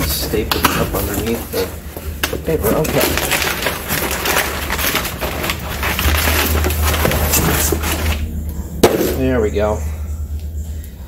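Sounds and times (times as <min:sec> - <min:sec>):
packing paper rustling: 0:00.0 - 0:08.3.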